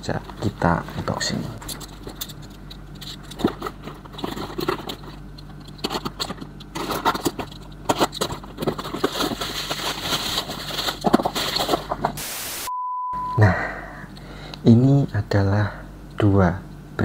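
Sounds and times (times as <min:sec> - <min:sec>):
steady low hum: 0:00.0 - 0:17.0
packaging scrapes and rustles: 0:03.0 - 0:12.2.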